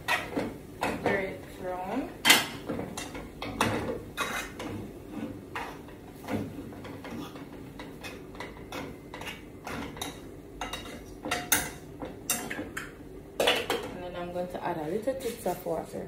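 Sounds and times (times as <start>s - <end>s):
spoon scraping cooking pot: 4.2s - 5.9s.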